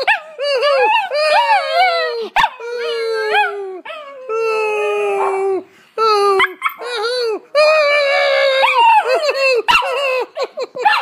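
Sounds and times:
puppy howling: 0.0 - 5.6, 7.6 - 10.3.

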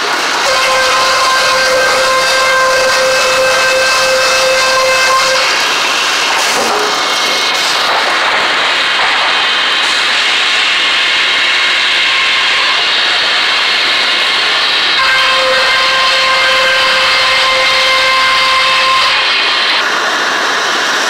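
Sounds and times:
circular saws cutting a board: 0.0 - 8.4.

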